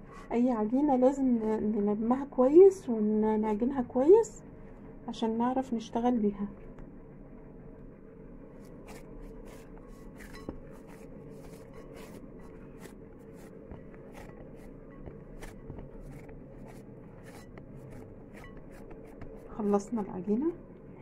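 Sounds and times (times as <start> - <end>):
steady low hum: 0.0 - 21.0
dough slapping and squishing: 8.6 - 20.6.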